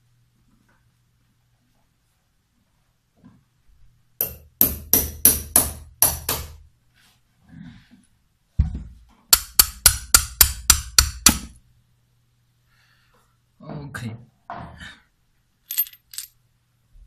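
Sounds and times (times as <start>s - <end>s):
sharp metallic knocks: 4.2s - 6.6s, 9.3s - 11.6s.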